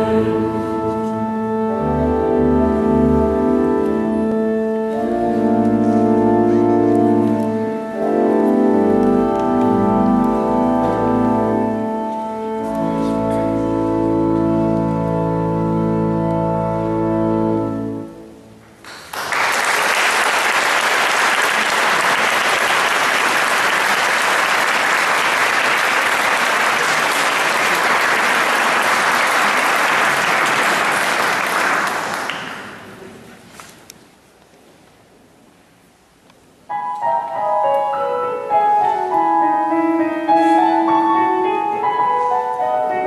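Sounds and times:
organ chord: 0.0s - 18.6s
audience applause: 18.8s - 33.2s.

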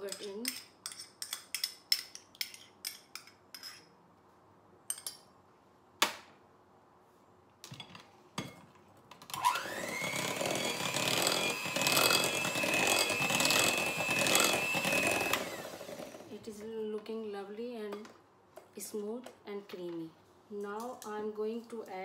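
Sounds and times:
electric mixer motor whine: 9.3s - 16.3s.

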